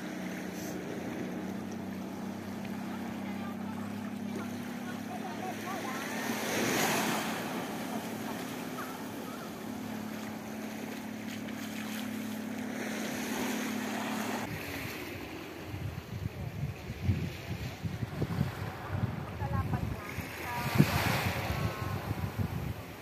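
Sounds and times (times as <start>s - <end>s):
low engine hum: 0.0s - 23.0s
surf washing on sandy beach: 0.0s - 23.0s
wind buffeting microphone: 14.4s - 23.0s.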